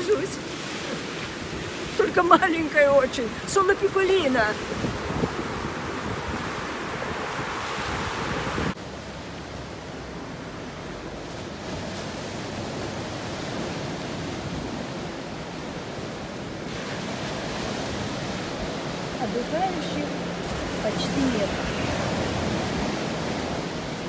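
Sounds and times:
wind buffeting microphone: 0.0 - 9.7
surf washing onto beach: 0.0 - 24.0.

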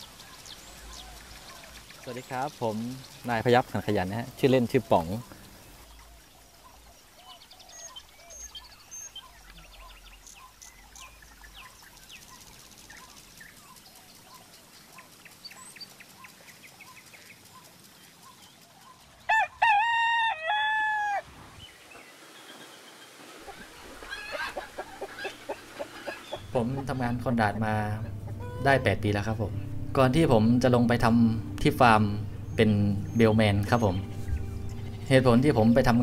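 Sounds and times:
faint birdsong twittering: 0.0 - 36.0
rooster crowing: 19.3 - 21.3, 24.0 - 26.3.

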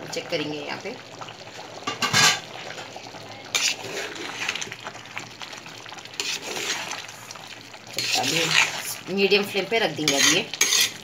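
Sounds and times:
metal spoon scraping a pot: 3.5 - 4.7, 6.2 - 7.0, 7.9 - 9.0, 10.0 - 11.0.

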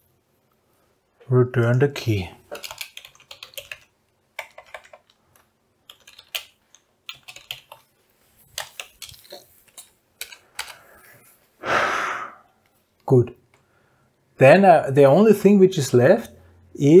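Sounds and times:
keyboard typing: 2.5 - 10.9
short rush of noise: 11.6 - 12.5.

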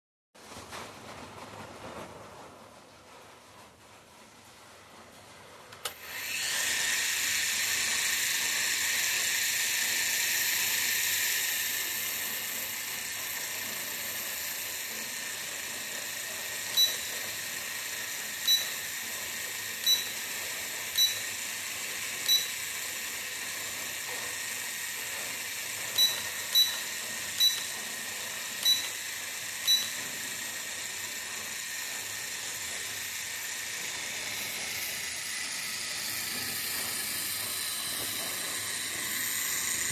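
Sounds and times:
short electronic beeps: 16.8 - 17.1, 18.5 - 18.8, 19.9 - 20.2, 21.0 - 21.2, 22.3 - 22.6, 26.0 - 27.7, 28.6 - 29.0, 29.7 - 30.0.

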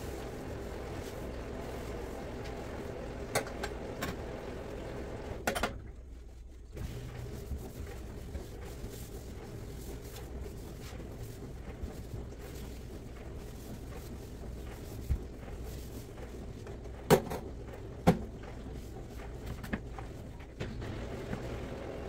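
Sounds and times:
cloth rubbing steel sink: 0.0 - 5.2
steady low hum: 0.0 - 22.0.

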